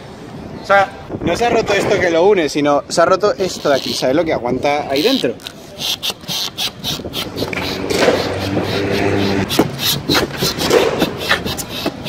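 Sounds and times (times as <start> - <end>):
hands handling skateboard truck: 7.3 - 12.0.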